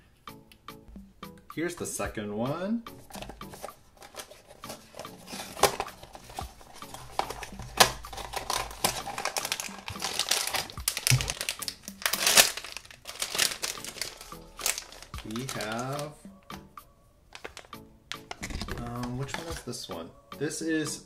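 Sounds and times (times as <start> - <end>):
foil bag crinkling: 3.1 - 16.2, 17.4 - 19.6.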